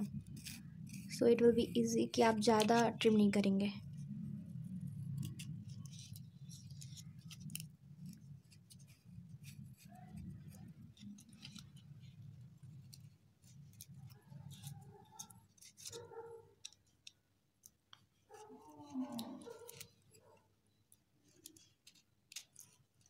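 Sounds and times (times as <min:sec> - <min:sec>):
steady low hum: 0:00.0 - 0:15.0
fingers scratching and clicking: 0:00.0 - 0:23.0.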